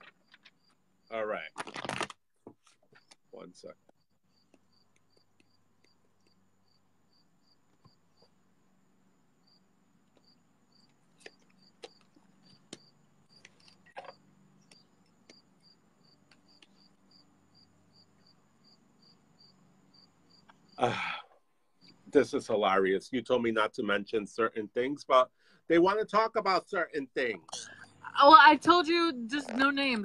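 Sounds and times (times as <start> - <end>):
cricket chirping: 3.9 - 21.2.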